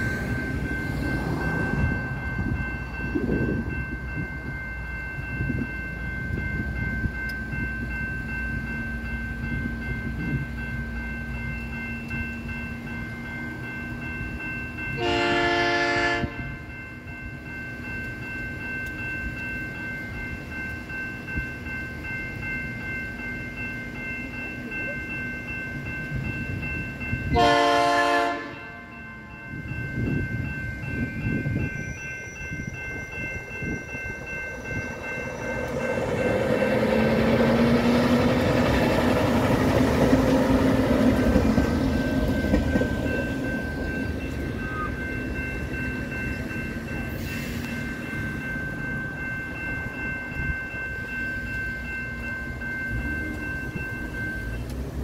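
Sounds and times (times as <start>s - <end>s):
train rumble: 0.0s - 55.0s
locomotive air horn blasts: 15.0s - 16.5s, 27.4s - 28.9s.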